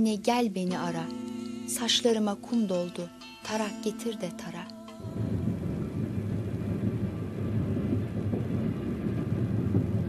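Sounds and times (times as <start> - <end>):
train rumbling on track: 5.0 - 10.0.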